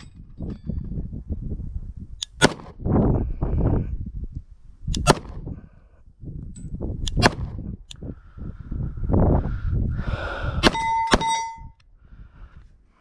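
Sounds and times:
wind rumbling on microphone: 0.0 - 13.0
pistol shots: 2.3 - 2.7, 5.0 - 5.4, 7.1 - 7.5.

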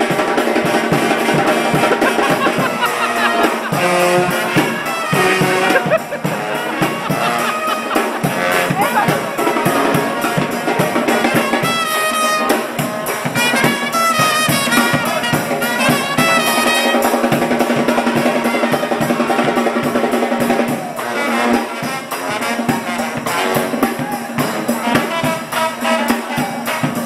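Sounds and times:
brass band playing: 0.0 - 27.0
steady drum beat: 0.0 - 27.0
trumpet phrases: 0.0 - 27.0.

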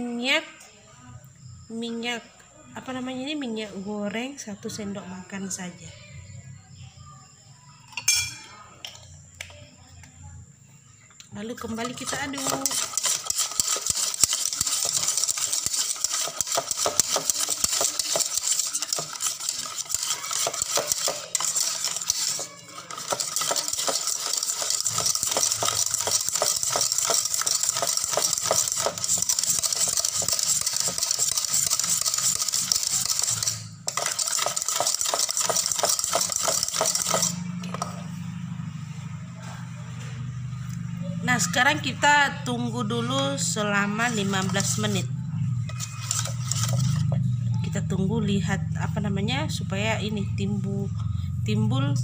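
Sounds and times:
whisk beating batter in bowl: 11.5 - 38.0, 43.8 - 47.5.

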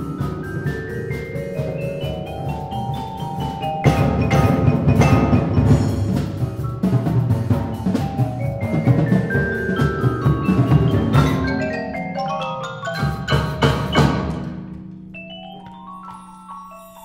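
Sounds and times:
percussion ensemble playing: 0.0 - 17.0
ringing mallet notes: 0.0 - 17.0
loud accented drum hits: 3.8 - 11.6.

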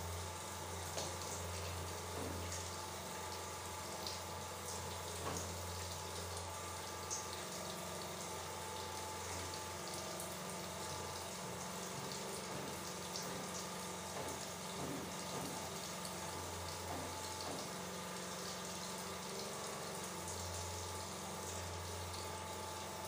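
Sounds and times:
shower water running: 0.0 - 23.0
water splashes and drips: 0.0 - 23.0.

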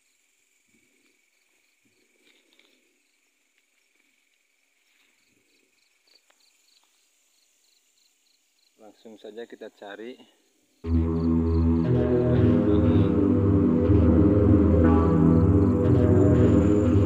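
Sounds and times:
crickets trilling: 0.0 - 10.9.

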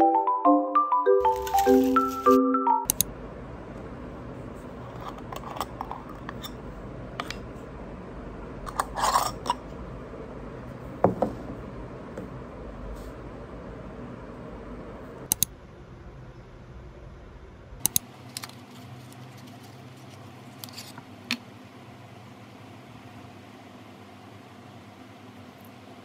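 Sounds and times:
mallet percussion tune: 0.0 - 2.9
low room hum: 2.9 - 26.0.

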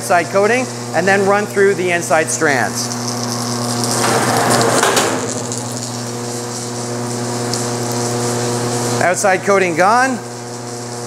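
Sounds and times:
machine motor hum: 0.2 - 11.0.

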